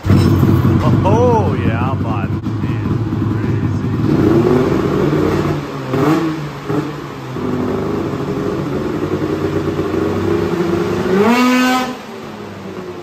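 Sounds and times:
snowmobile engine running: 0.0s - 6.3s.

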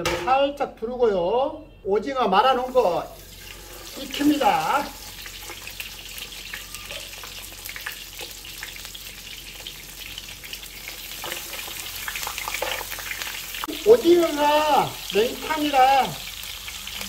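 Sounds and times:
food laid in pan: 2.4s - 17.0s
oil sizzling in a frying pan: 2.6s - 17.0s.

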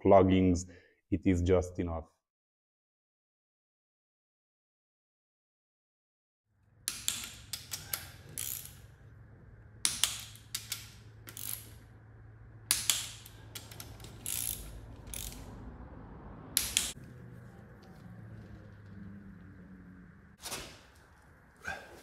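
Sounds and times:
hand ratchet clicking: 6.9s - 8.9s, 9.8s - 11.9s, 12.7s - 15.6s, 16.6s - 17.0s.

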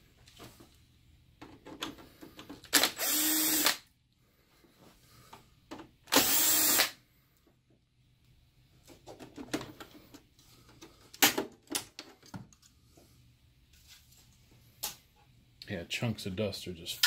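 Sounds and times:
electric screwdriver whirring: 2.7s - 3.9s, 6.1s - 7.0s.

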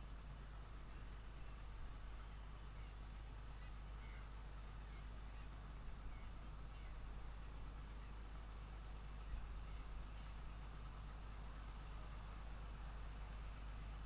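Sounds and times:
locomotive engine rumble: 0.0s - 14.0s.

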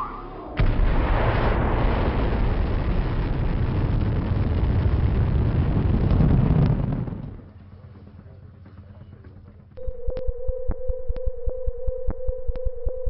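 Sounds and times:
deep rumble of rocket engines: 0.2s - 9.8s.

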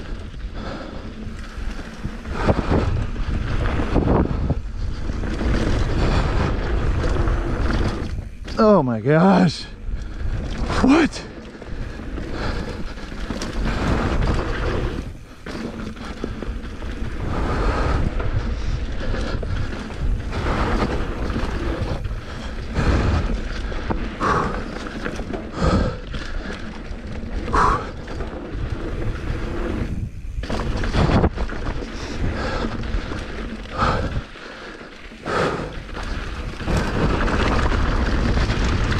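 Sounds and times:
tyres rolling over dirt and rocks: 0.0s - 38.9s
wind rumble on microphone: 0.0s - 38.9s
bike thumping over bumps: 27.1s - 34.2s.

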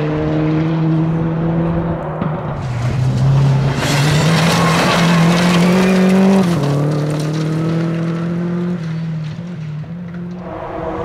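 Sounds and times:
rally car engine revving: 0.0s - 11.0s
gravel spraying from tyres: 2.6s - 11.0s.

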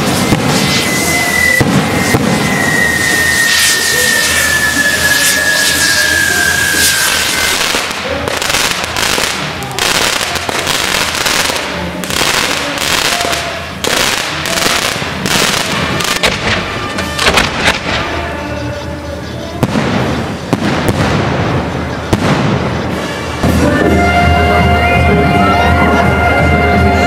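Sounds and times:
sharp firework bangs: 0.0s - 18.2s, 19.6s - 24.1s
fireworks crackling and popping: 0.0s - 24.8s
music: 14.8s - 20.0s, 22.2s - 27.0s.

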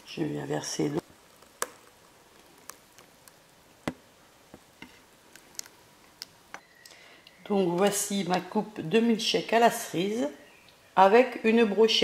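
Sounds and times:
sharp little clicks and pops: 1.2s - 4.0s, 5.3s - 7.4s.

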